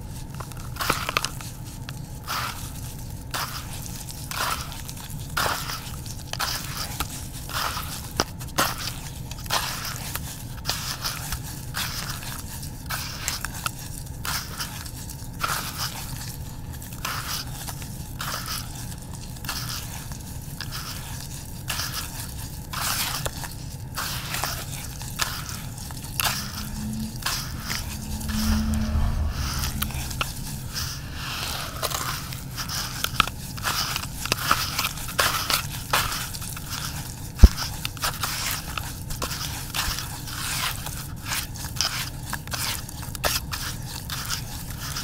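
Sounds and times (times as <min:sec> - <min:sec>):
hands squishing gritty paste: 0:00.7 - 0:26.6.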